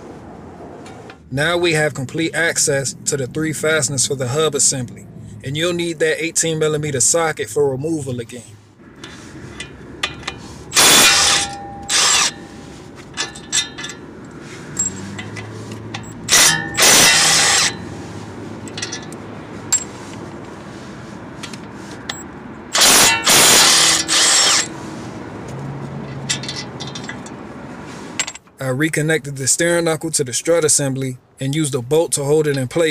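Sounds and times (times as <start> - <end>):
impact wrench hammering: 9.0 - 14.1, 14.8 - 17.9, 22.1 - 24.7.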